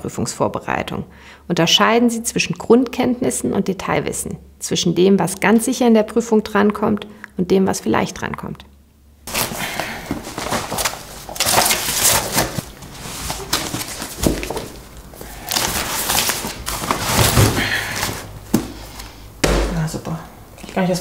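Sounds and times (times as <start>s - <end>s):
paper and fabric rustling: 9.3s - 19.1s
dull knock: 19.4s - 19.8s.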